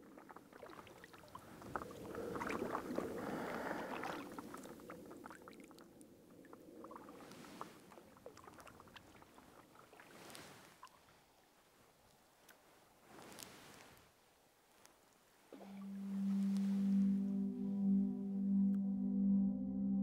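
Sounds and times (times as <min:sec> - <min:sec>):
paddle swishing through water: 0:00.0 - 0:05.6, 0:06.5 - 0:14.2, 0:14.9 - 0:17.4
water dripping and lapping: 0:00.0 - 0:14.0, 0:14.9 - 0:17.1.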